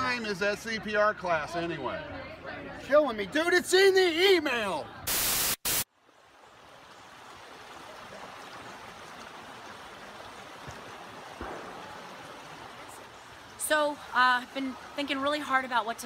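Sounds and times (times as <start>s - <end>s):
burst of static: 5.1s - 5.9s
creek running over rocks: 5.9s - 16.0s.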